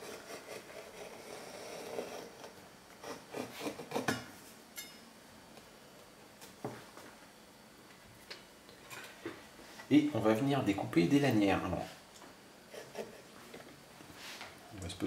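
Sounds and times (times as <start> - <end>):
knife scraping cutting board: 0.0 - 4.2, 12.7 - 13.2.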